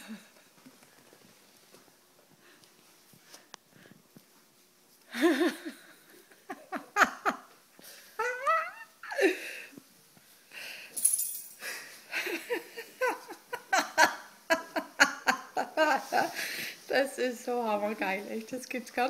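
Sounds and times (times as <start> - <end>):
person laughing breathlessly: 5.1 - 9.8, 11.6 - 16.8.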